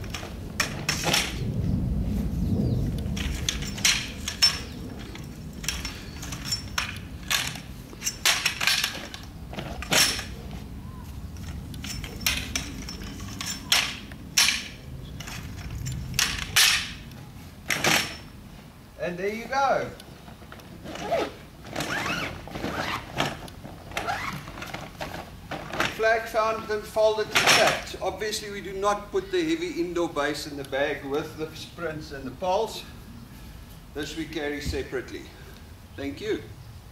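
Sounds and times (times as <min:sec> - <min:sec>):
bag handling: 0:03.2 - 0:14.0, 0:20.2 - 0:26.3.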